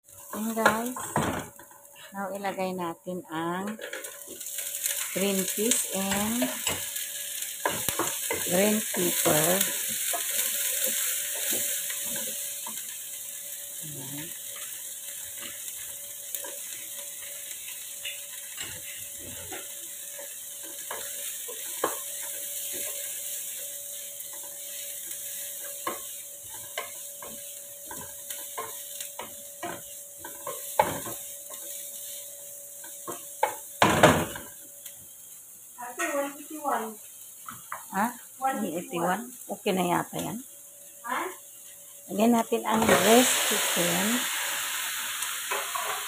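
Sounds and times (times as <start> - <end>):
vegetables sizzling in a pan: 0.0 - 46.0
wooden spatula scraping a pan: 15.3 - 34.5.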